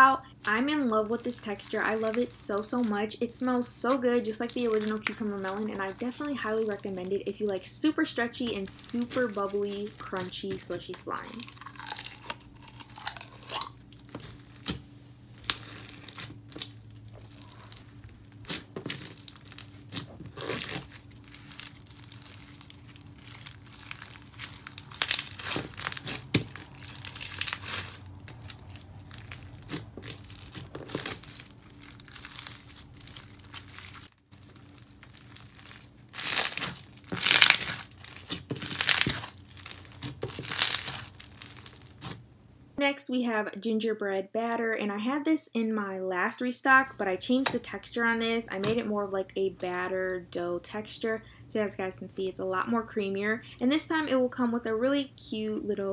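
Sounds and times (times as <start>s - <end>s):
beaded slime crackling: 0.4s - 42.2s.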